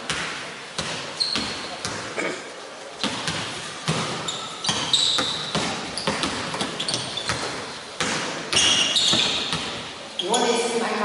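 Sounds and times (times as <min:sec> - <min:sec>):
basketballs bouncing on hardwood: 0:00.0 - 0:02.1, 0:03.0 - 0:09.9
sneaker squeaks: 0:00.8 - 0:02.3, 0:03.0 - 0:10.7.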